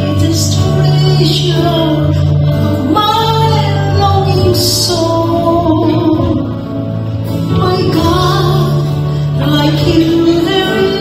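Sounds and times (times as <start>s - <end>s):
band playing guitars bass keyboard: 0.0s - 11.0s
woman singing into microphone: 0.0s - 11.0s.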